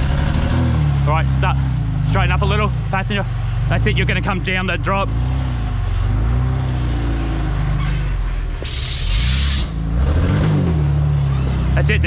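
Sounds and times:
truck engine running: 0:00.0 - 0:12.0
sharp hiss: 0:08.6 - 0:09.8.

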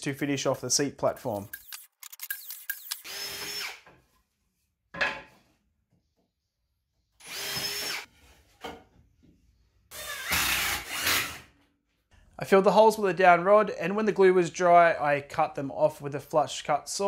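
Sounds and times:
power drill drilling into wood: 0:02.8 - 0:03.8, 0:07.2 - 0:08.1, 0:09.9 - 0:11.4.

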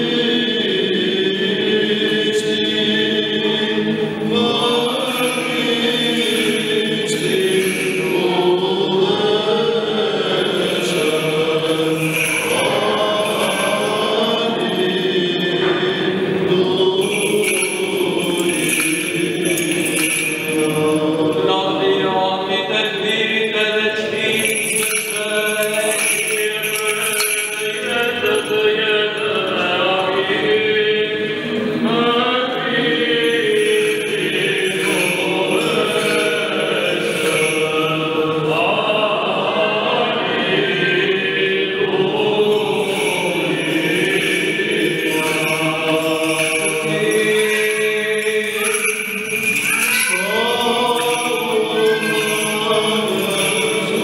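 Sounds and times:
voices singing chant: 0:00.0 - 0:54.0
light metallic jingling: 0:04.9 - 0:08.7, 0:10.4 - 0:15.0, 0:17.0 - 0:21.4, 0:24.3 - 0:29.6, 0:33.2 - 0:38.3, 0:42.6 - 0:54.0.

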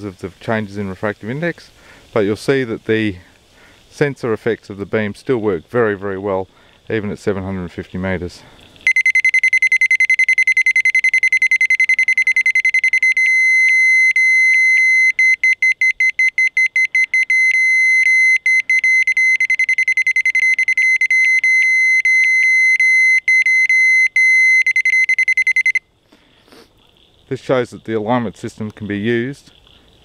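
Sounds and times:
sensor beeping high tone: 0:08.9 - 0:25.8.

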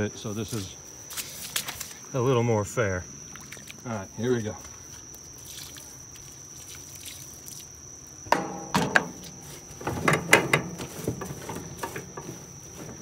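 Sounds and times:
water pouring from a jug: 0:05.4 - 0:07.7.

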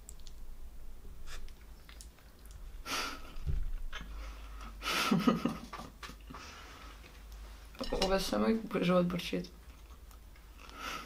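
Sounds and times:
woman laughing softly: 0:02.8 - 0:06.0.

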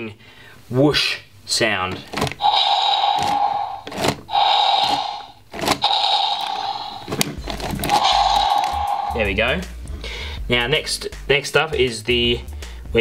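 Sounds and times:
toy whoosh sound effect: 0:02.4 - 0:07.1, 0:07.9 - 0:09.4.

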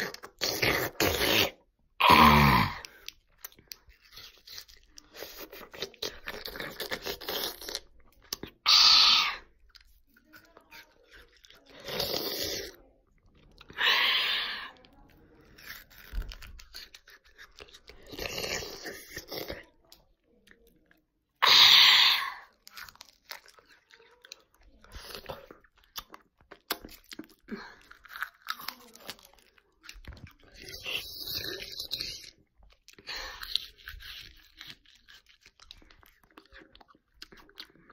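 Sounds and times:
person biting and chewing food: 0:00.0 - 0:20.6, 0:21.4 - 0:37.9.

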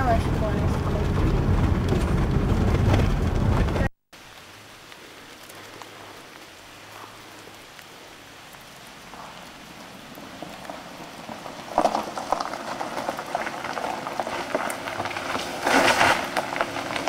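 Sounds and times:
car driving on gravel: 0:00.0 - 0:17.0
outdoor hiss: 0:04.1 - 0:13.2.

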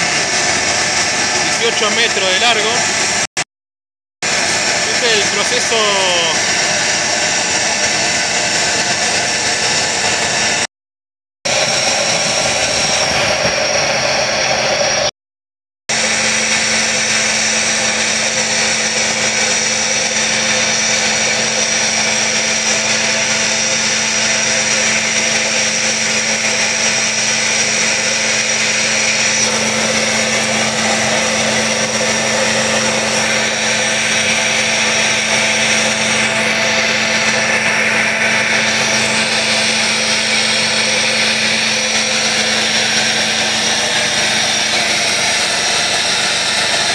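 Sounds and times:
gas burner roaring: 0:00.0 - 0:03.4, 0:04.2 - 0:10.7, 0:11.5 - 0:15.1, 0:15.9 - 0:46.9
steady hum: 0:15.9 - 0:46.9.

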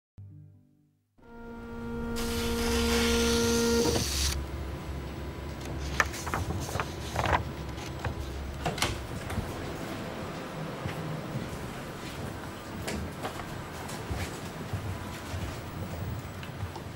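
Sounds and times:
loud whirring rush: 0:01.5 - 0:05.4
photocopier running: 0:01.6 - 0:10.4.

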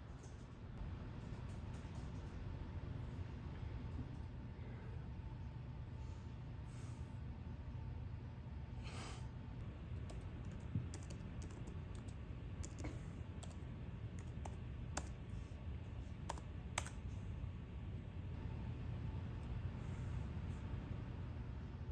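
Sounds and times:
low steady hum: 0:00.0 - 0:21.9
laptop keyboard typing: 0:01.2 - 0:02.4, 0:10.0 - 0:15.2, 0:16.2 - 0:17.0.

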